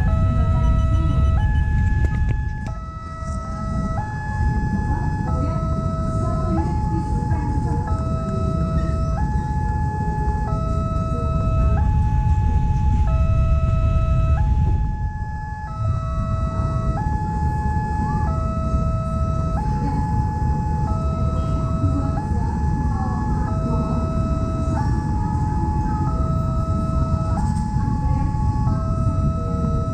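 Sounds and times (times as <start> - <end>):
train carriages rumbling on rails: 0.0 - 15.1
two-tone crossing warning siren: 0.0 - 29.9.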